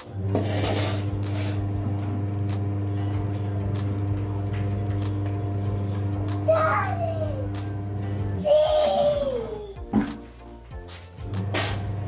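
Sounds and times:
low mechanical hum: 0.0s - 8.5s.

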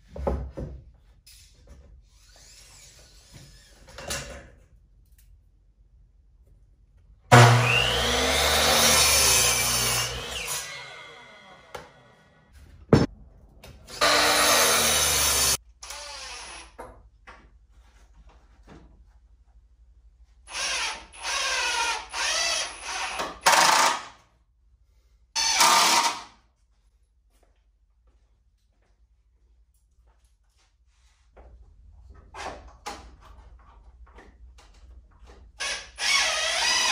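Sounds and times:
miter saw whining and cutting: 7.3s - 12.4s, 13.9s - 15.6s
cordless drill driving screws: 13.9s - 16.8s, 20.5s - 24.1s, 35.6s - 36.9s.

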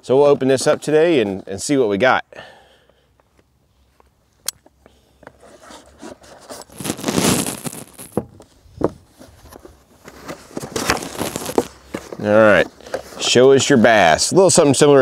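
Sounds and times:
cardboard scraping: 5.3s - 13.7s
packing tape tearing: 5.5s - 8.2s, 10.7s - 11.7s.

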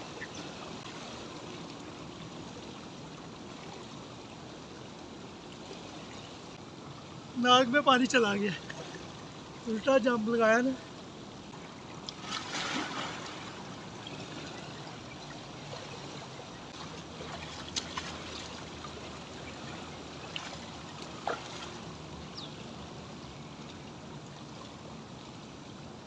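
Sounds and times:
pool water lapping: 0.0s - 26.0s
small water splashes: 8.2s - 9.8s, 10.7s - 25.9s.

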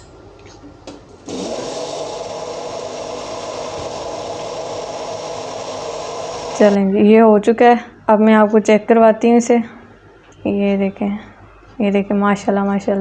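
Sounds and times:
electric blender running: 1.3s - 6.8s.

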